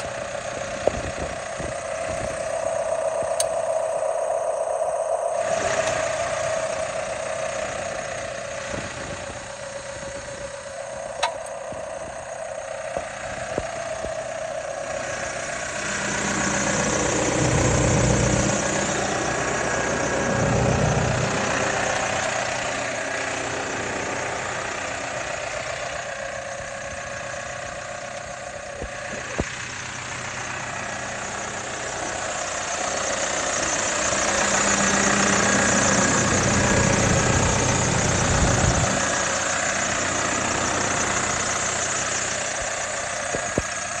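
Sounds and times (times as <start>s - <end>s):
tractor diesel engine running: 0.0s - 44.0s
sharp click: 11.2s - 11.6s.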